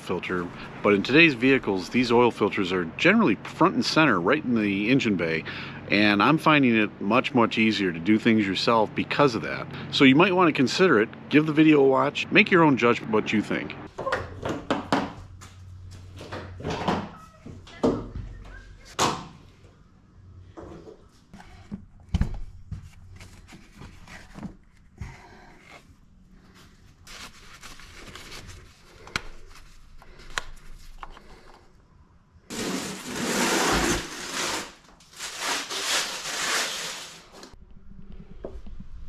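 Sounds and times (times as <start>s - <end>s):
cardboard scraping on floor: 32.5s - 37.6s.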